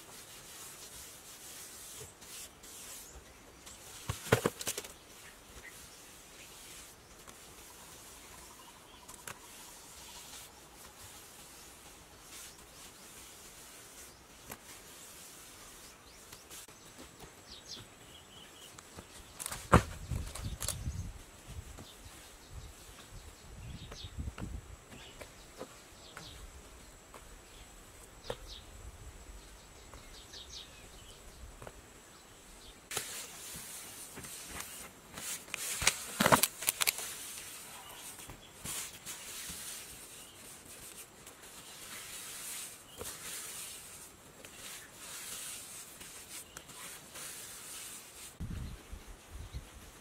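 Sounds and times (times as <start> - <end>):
hand smoothing wet mortar: 0.0 - 4.5, 5.1 - 17.2, 32.9 - 48.4.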